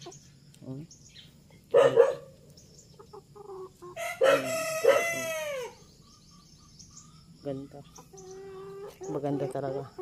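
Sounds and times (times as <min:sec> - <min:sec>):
rooster crowing: 0:04.0 - 0:05.8.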